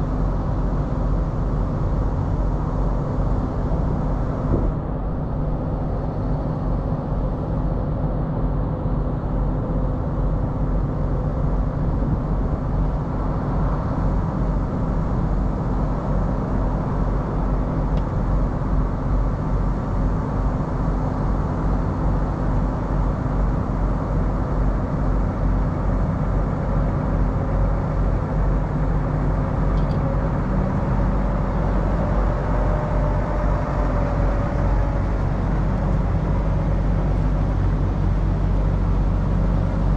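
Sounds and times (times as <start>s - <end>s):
diesel truck engine idling: 24.3s - 39.9s.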